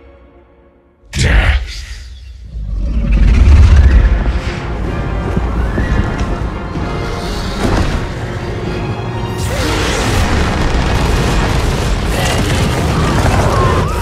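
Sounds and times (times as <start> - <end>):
orchestral score with deep booms: 0.0 - 14.0
explosions: 9.4 - 14.0.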